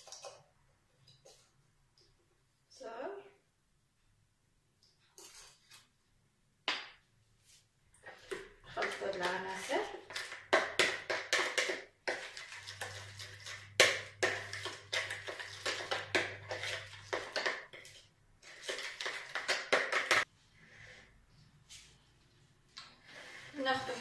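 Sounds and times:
spoon scraping and clinking in bowl: 5.2 - 5.8, 11.3 - 19.5.

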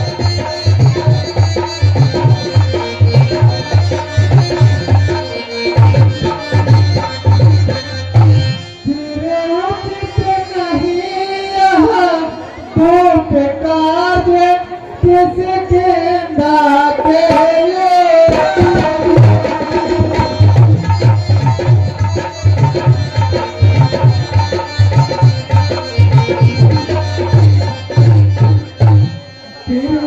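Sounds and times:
hand drum fast rhythm: 18.3 - 28.6.

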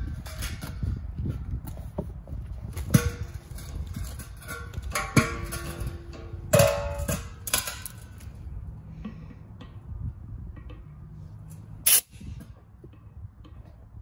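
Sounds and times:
metal keg clanking and ringing: 2.9 - 8.1.

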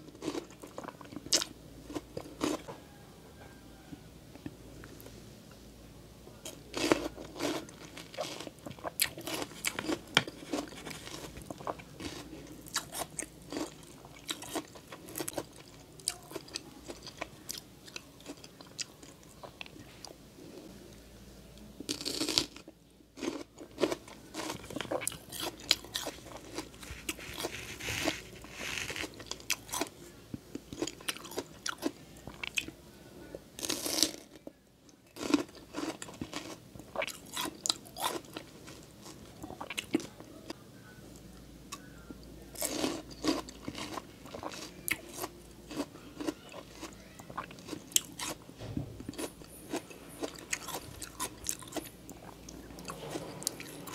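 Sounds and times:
crunchy fruit chewing: 0.0 - 3.6, 6.4 - 19.8, 23.2 - 29.9, 30.7 - 32.7, 35.1 - 40.2, 42.5 - 48.4, 49.1 - 53.9.

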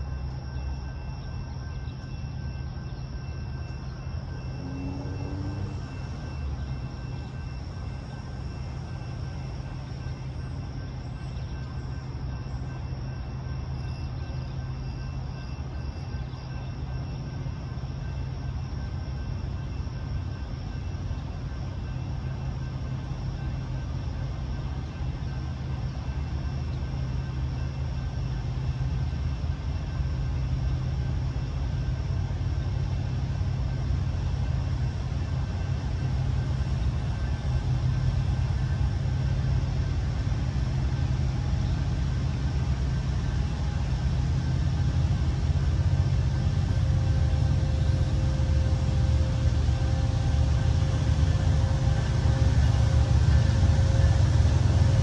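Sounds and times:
faint steady tone: 0.0 - 55.0
low steady rumble: 23.3 - 55.0.

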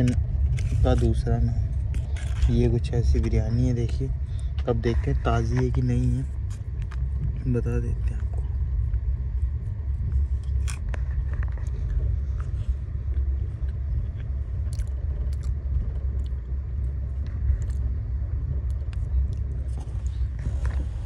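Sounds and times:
train rumbling: 0.0 - 21.0
person chewing: 10.2 - 18.0.

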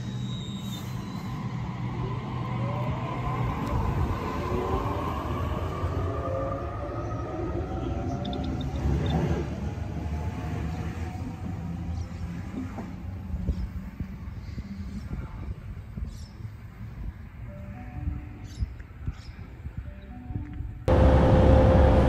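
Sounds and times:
wheels rumbling on rail: 0.0 - 17.5, 20.9 - 22.0
electric train motor whine: 20.9 - 22.0.

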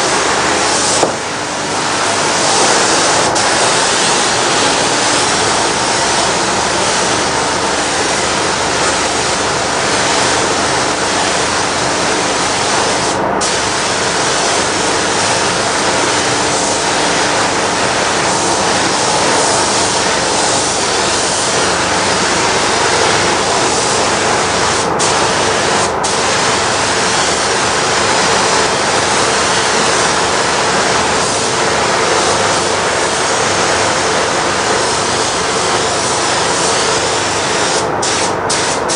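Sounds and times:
spray gun hissing: 0.0 - 38.9.

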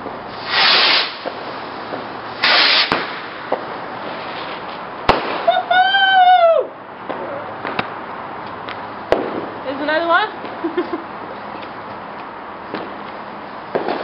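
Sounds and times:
firework rocket launching: 0.0 - 7.9, 9.1 - 9.7, 12.7 - 14.0
firework bangs: 0.0 - 8.1, 9.0 - 11.1, 12.7 - 14.0.

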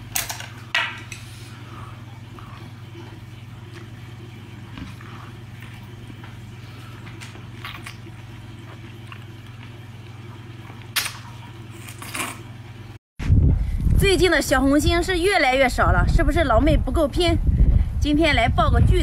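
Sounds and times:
steady low hum: 0.0 - 19.0
mouth smacks and chewing: 7.0 - 10.9.

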